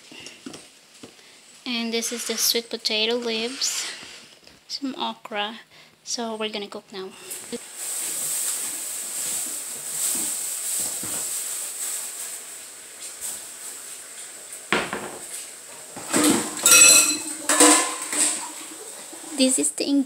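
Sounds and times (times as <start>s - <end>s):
metal dishware clanking: 16.0s - 18.6s.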